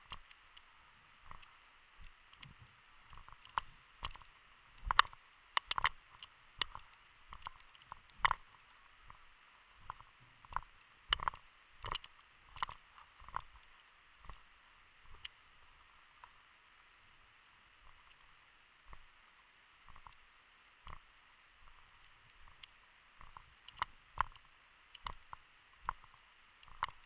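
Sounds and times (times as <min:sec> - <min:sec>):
gear knocking and clicking: 0:00.0 - 0:00.4, 0:03.1 - 0:08.5, 0:09.8 - 0:13.6, 0:23.2 - 0:27.0.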